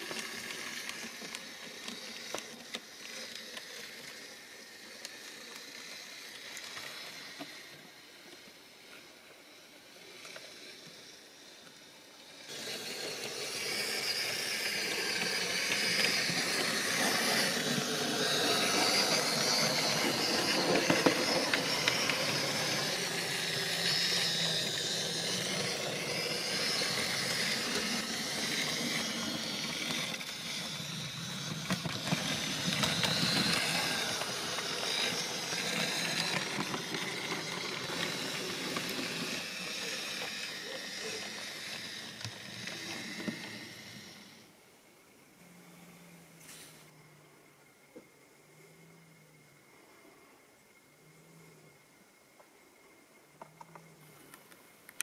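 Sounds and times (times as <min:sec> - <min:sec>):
model train wheels rattling: 0:00.0 - 0:08.4, 0:10.2 - 0:44.4.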